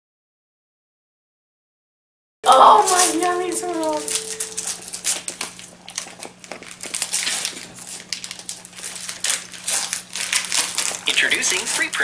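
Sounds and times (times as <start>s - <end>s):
gift wrap crinkling and rustling: 2.6s - 3.3s, 5.9s - 12.0s.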